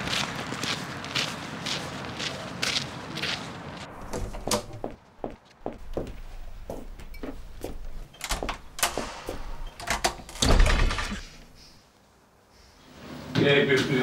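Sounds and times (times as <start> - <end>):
footfalls: 0.0 - 11.8
door thud: 4.0 - 5.0, 7.7 - 11.6.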